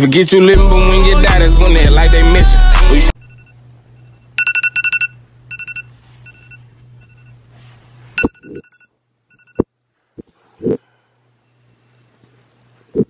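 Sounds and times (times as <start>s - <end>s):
phone alarm two-tone beeps: 8.2s - 9.6s.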